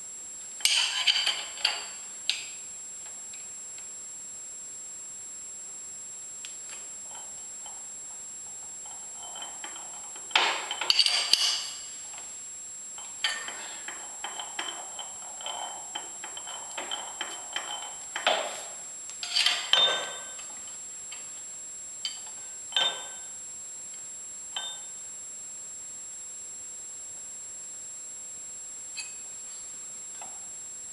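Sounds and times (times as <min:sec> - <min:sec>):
metal clatter: 0:08.9 - 0:11.8.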